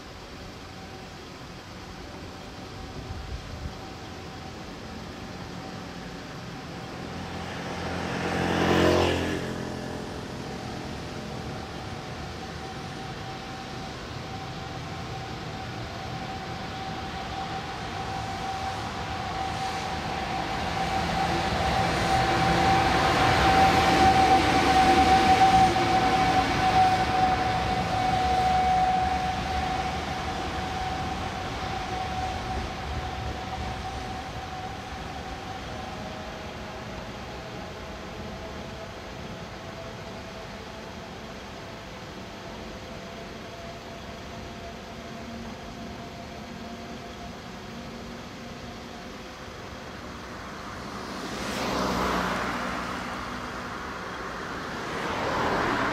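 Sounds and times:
electric locomotive passing: 0:00.0 - 0:55.9
train running gear noise: 0:09.9 - 0:52.1.

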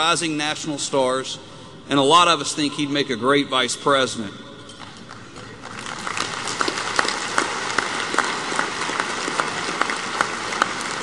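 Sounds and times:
sharp individual claps: 0:04.8 - 0:11.0
audience applauding: 0:05.1 - 0:11.0.

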